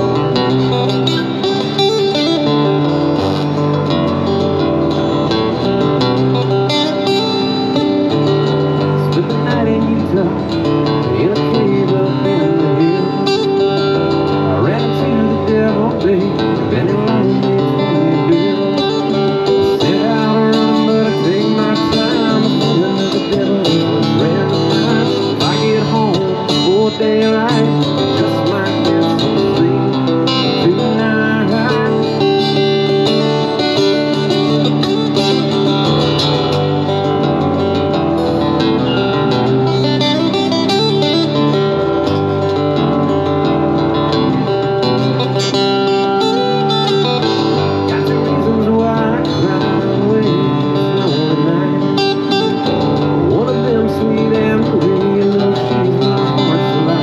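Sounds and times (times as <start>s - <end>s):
picked guitar lines with bends: 0.0s - 57.0s
strummed guitar: 0.0s - 57.0s.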